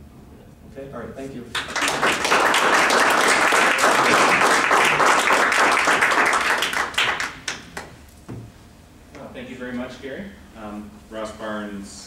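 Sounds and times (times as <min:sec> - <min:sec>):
audience applauding: 0:01.6 - 0:07.9.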